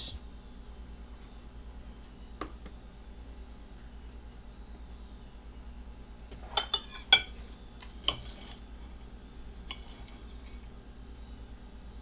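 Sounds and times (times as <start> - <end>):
ceramic plate clinking: 6.5 - 7.4.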